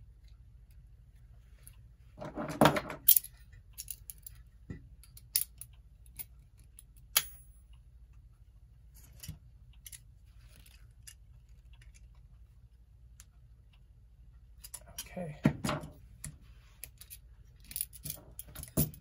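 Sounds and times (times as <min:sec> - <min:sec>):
small metal parts clicking: 0:02.9 - 0:07.4, 0:09.0 - 0:12.1, 0:16.8 - 0:19.0.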